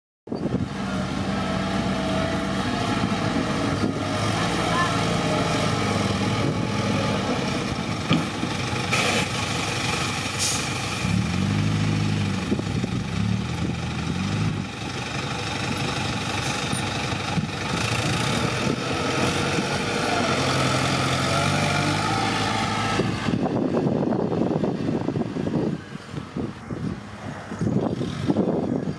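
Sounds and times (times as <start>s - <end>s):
truck engine running: 0.4s - 28.9s.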